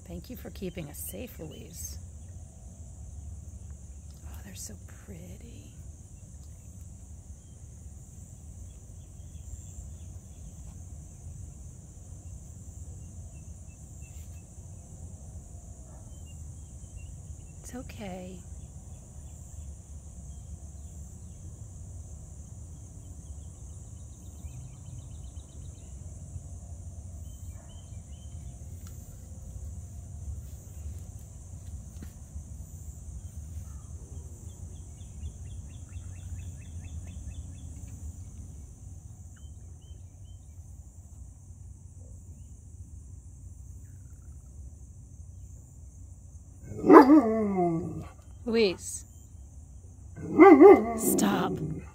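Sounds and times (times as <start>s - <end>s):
high-pitched insect chorus: 0.0s - 51.9s
low outdoor rumble: 0.0s - 51.9s
dog barking: 27.5s - 27.9s, 46.8s - 48.1s, 50.2s - 51.9s.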